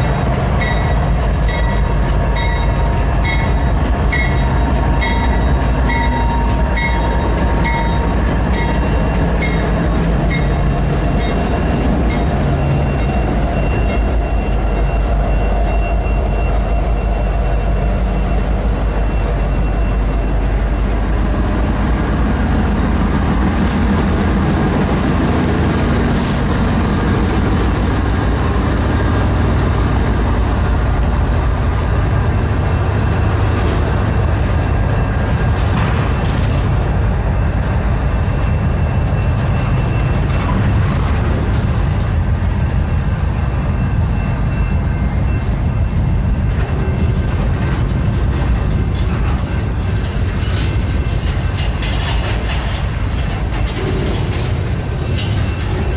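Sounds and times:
diesel locomotive engine: 0.0 - 55.9
train cars clanking: 0.0 - 55.9
train wheels rumbling on rail: 0.0 - 55.9.

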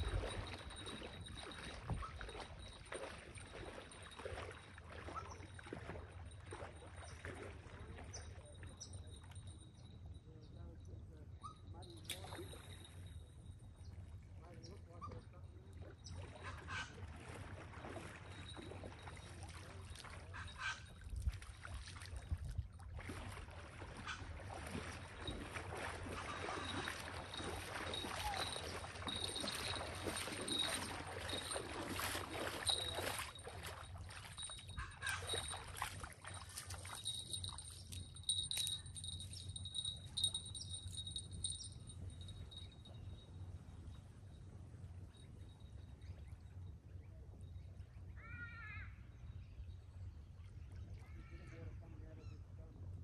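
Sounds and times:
wading splashing steps: 0.0 - 9.4, 15.2 - 41.0
small waves lapping: 0.0 - 9.6, 11.8 - 13.2, 13.8 - 41.0.

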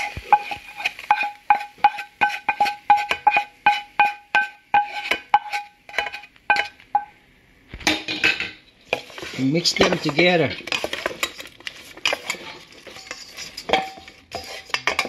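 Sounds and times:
sauce scraped from pan: 0.0 - 3.8, 8.9 - 15.0
pan and spatula knocking on metal bowl: 0.0 - 7.1.

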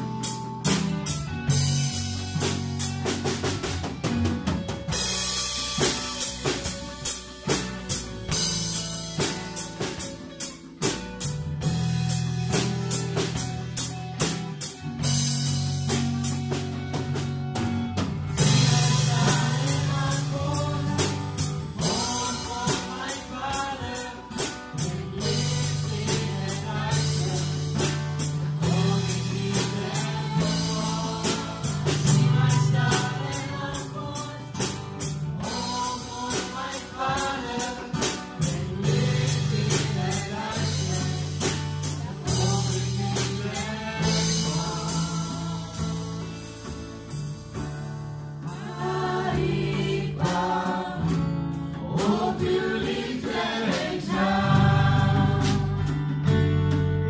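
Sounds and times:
drum kit and hand drum beat: 0.0 - 57.0
electric guitars: 0.0 - 57.0
person singing: 18.4 - 34.8, 35.4 - 46.2, 48.5 - 56.0.

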